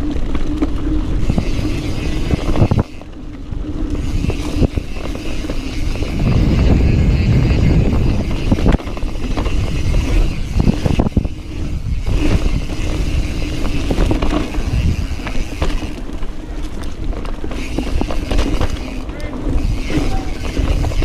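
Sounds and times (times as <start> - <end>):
bike knocks and rattles: 0.0 - 3.1, 3.9 - 21.0
wind rushing over microphone: 0.0 - 16.0
tyres rolling on dirt: 0.0 - 21.0.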